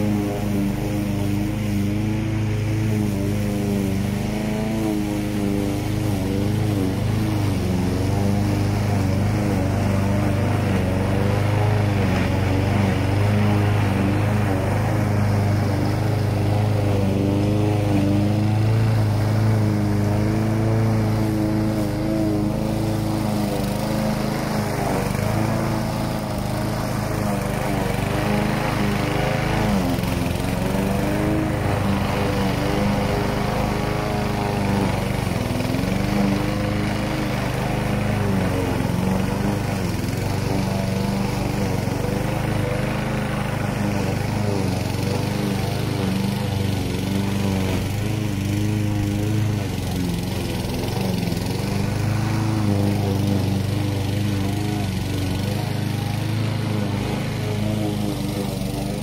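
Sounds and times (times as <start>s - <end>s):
lawn mower engine running: 0.0s - 59.0s.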